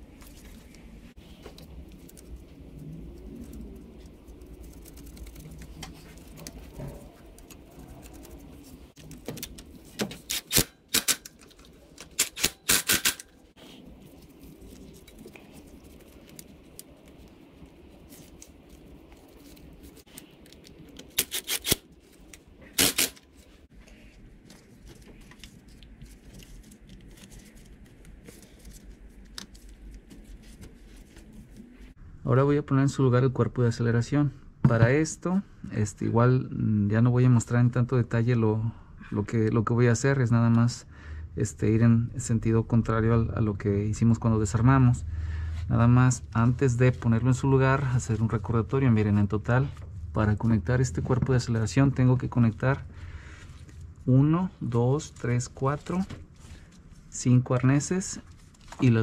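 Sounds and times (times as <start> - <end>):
tools clicking and rattling: 9.2 - 13.4.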